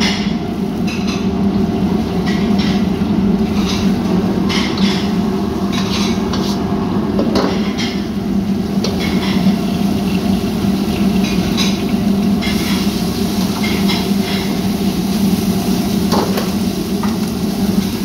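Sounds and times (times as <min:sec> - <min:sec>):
gas burner roaring: 0:00.0 - 0:18.0.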